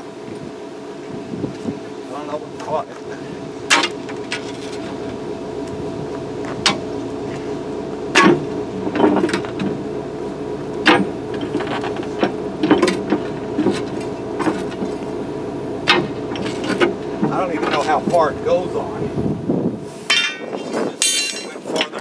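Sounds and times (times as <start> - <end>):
engine hum: 0.0 - 22.0
metal bar clanking on steel: 20.1 - 22.0.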